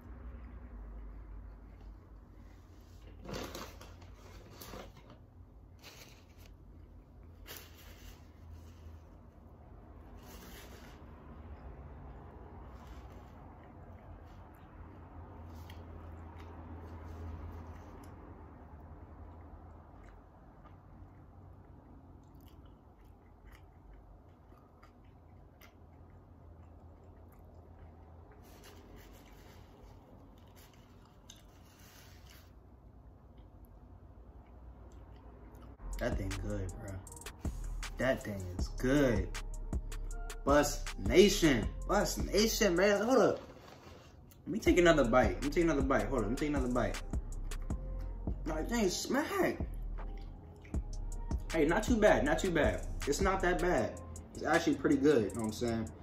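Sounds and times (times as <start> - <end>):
person chewing: 19.2 - 35.8, 49.9 - 50.9
crinkly rustling: 43.0 - 44.4.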